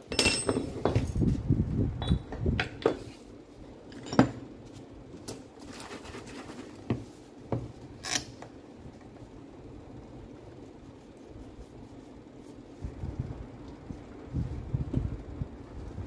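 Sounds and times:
tools clinking on hard floor: 0.0s - 1.2s, 3.9s - 4.4s.

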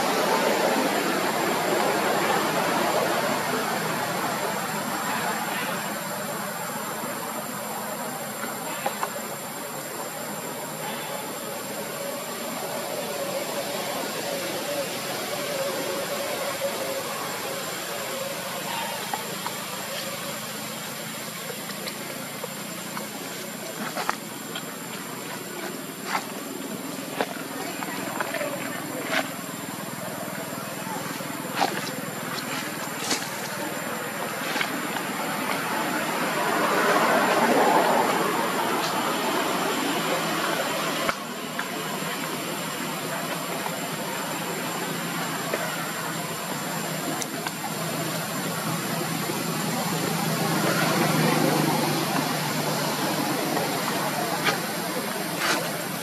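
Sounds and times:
outdoor background hiss: 0.0s - 56.0s.

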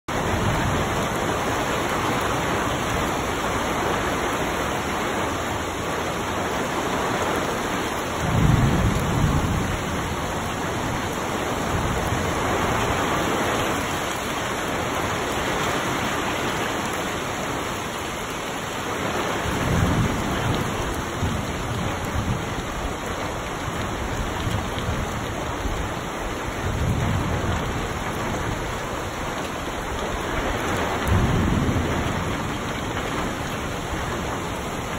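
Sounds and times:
heavy rain on trees and grass: 0.1s - 34.9s.

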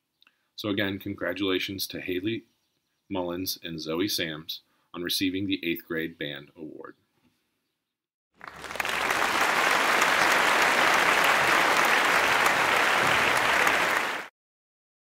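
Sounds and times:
audience applause: 8.4s - 14.3s.

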